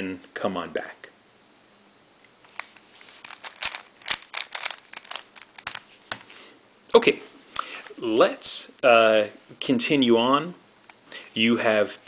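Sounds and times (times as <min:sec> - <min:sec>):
puzzle cube layers clicking: 0:03.3 - 0:05.8.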